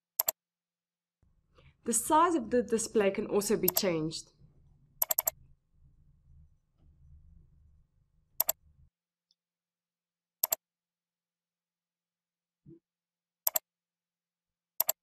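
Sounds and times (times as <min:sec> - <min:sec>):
mouse button clicking: 0:03.7 - 0:03.9, 0:05.0 - 0:05.4.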